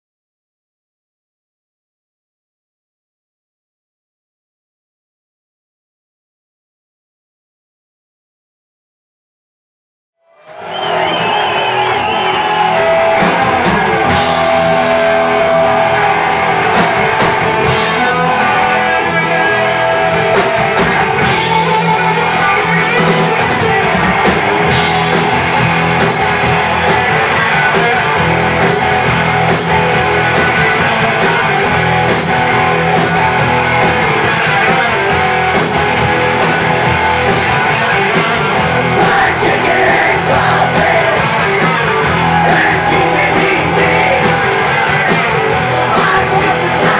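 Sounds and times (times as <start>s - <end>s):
rock band playing live: 10.5s - 46.9s.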